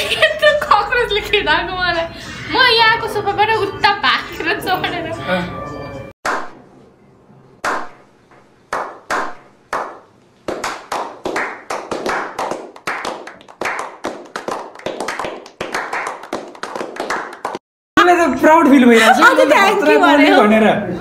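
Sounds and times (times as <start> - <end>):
people clapping: 8.7 - 17.6.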